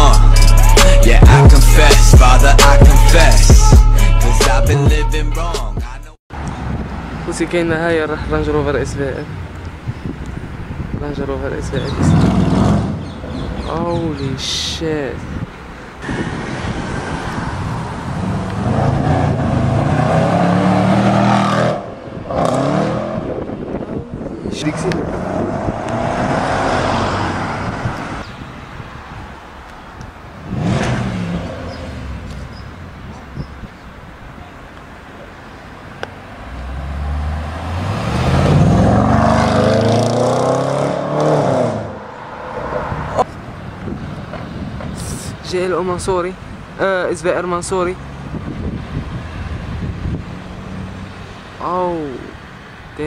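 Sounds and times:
car accelerating past: 0:25.1 - 0:28.2, 0:36.4 - 0:43.2.

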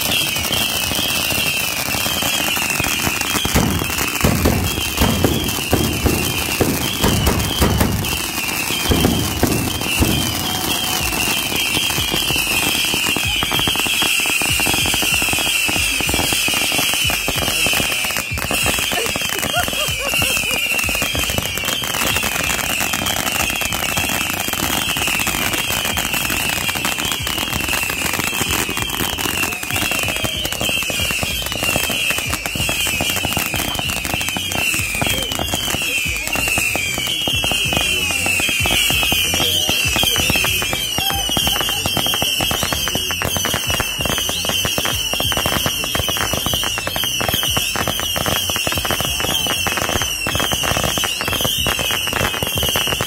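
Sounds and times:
crackling spark fountains: 0:00.0 - 0:53.0
fireworks whistling: 0:00.0 - 0:53.0.

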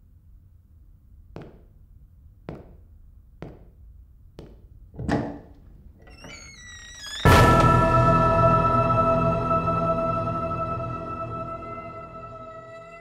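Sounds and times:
heavy footsteps: 0:01.4 - 0:01.8, 0:02.4 - 0:03.8.

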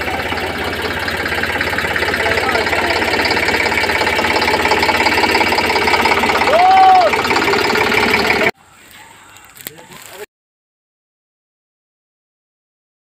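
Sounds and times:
tractor diesel engine running: 0:00.0 - 0:10.2.

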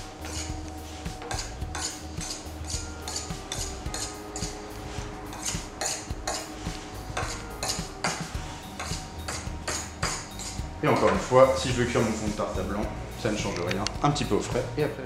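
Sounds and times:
knife scraping metal ring: 0:00.2 - 0:04.7, 0:05.3 - 0:11.2.

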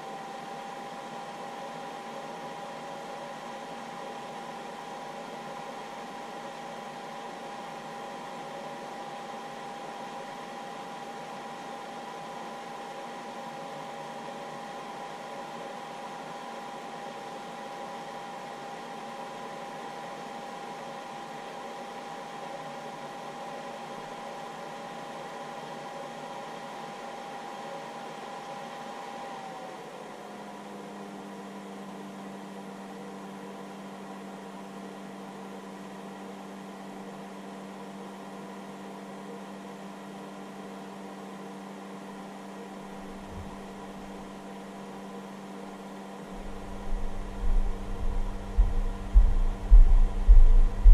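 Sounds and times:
cooling fan whirring with whine: 0:00.0 - 0:50.9
low hum: 0:43.0 - 0:44.0, 0:46.3 - 0:50.9.

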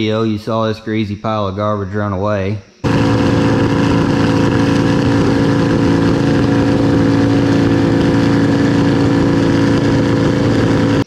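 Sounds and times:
diesel engine running at high pitch: 0:02.7 - 0:11.0.

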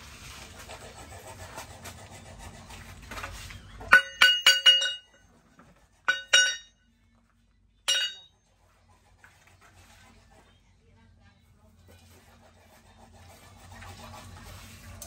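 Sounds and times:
steel spring ringing on anvil: 0:03.9 - 0:05.2, 0:06.1 - 0:06.8, 0:07.9 - 0:08.4.

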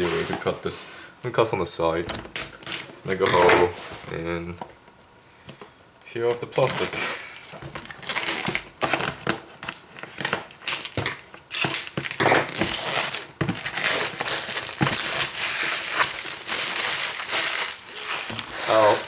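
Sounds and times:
plastic wrap crinkling: 0:06.2 - 0:19.0.

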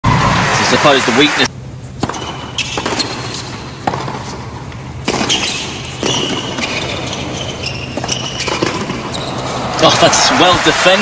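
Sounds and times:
tennis ball bouncing: 0:01.8 - 0:09.8
tennis racket striking ball: 0:01.9 - 0:09.8
shoe squeaks on court: 0:02.1 - 0:03.7, 0:05.1 - 0:09.6.

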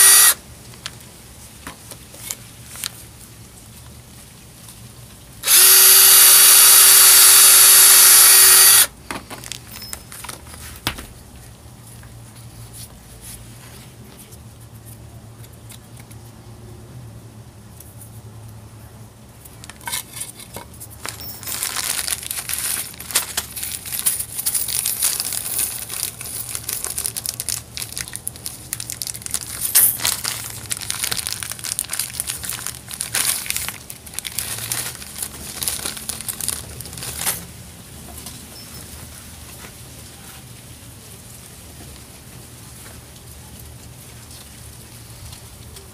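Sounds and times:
cordless drill whining: 0:00.0 - 0:00.4, 0:05.4 - 0:08.9
plastic bag crinkling: 0:05.4 - 0:10.6, 0:20.9 - 0:37.5.

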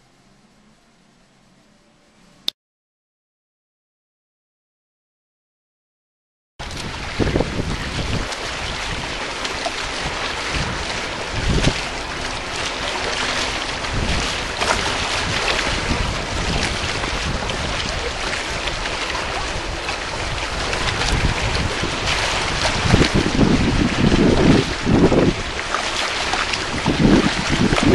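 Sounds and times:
wind buffeting microphone: 0:06.6 - 0:27.9.

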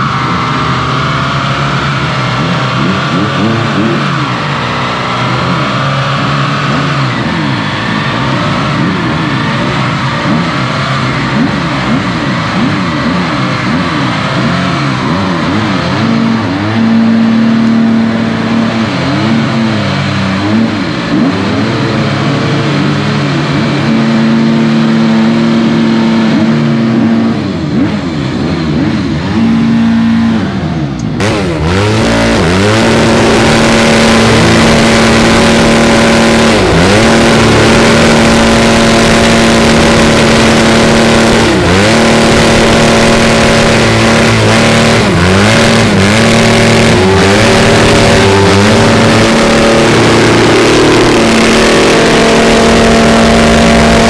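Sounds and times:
car engine revving high: 0:00.0 - 0:54.0.

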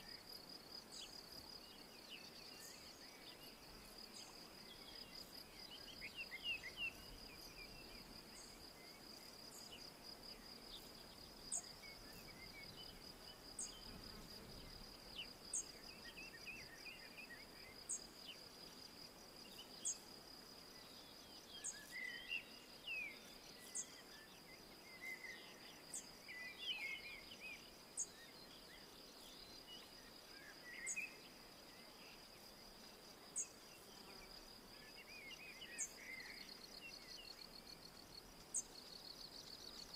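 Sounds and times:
soft bird chirps: 0:20.7 - 0:32.5.

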